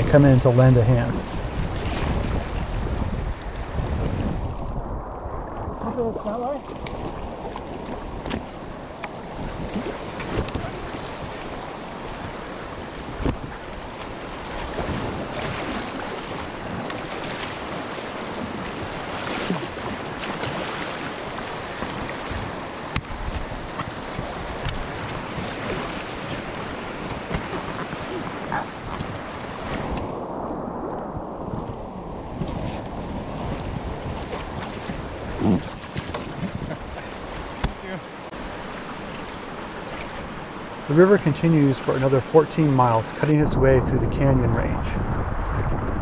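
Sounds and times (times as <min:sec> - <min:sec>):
wind noise on microphone: 0:00.0 - 0:37.9, 0:42.8 - 0:46.0
river current rushing and splashing: 0:00.0 - 0:46.0
sharp splashes: 0:05.1 - 0:37.9.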